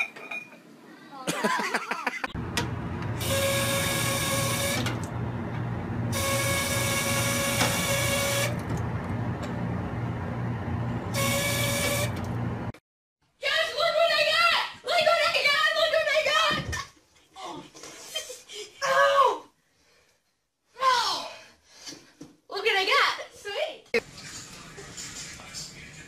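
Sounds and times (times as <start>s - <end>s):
valve whine: 2.6s - 12.7s.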